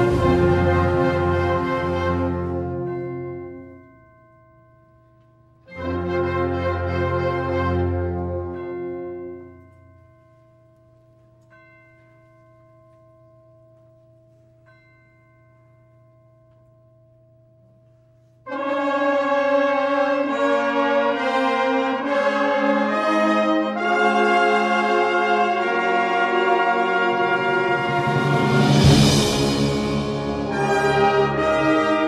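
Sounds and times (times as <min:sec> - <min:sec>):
brass: 0:00.0 - 0:03.7, 0:05.7 - 0:09.6, 0:18.4 - 0:32.0
wind band playing: 0:00.0 - 0:03.7, 0:05.7 - 0:09.5, 0:18.5 - 0:32.0.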